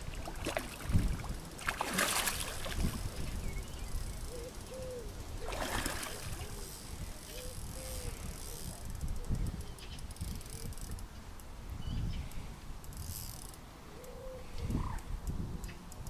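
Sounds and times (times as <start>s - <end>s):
fish splashing in water: 0.0s - 3.4s, 5.4s - 6.5s.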